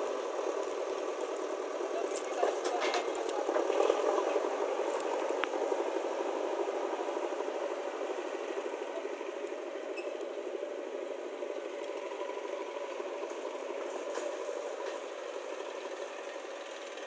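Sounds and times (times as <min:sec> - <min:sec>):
rattling: 0:00.0 - 0:05.6
diesel engine pulsing: 0:00.0 - 0:17.0.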